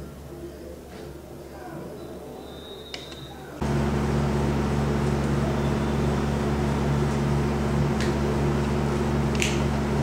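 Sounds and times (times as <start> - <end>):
steady low hum: 3.6 - 10.0.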